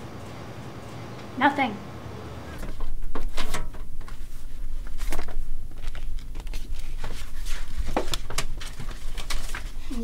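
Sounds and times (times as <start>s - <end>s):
faint clicks and rustles: 2.6s - 10.0s.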